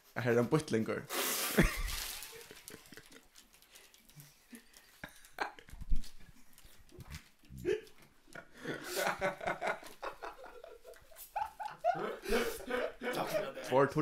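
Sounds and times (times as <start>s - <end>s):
man laughing: 7.6s - 13.8s.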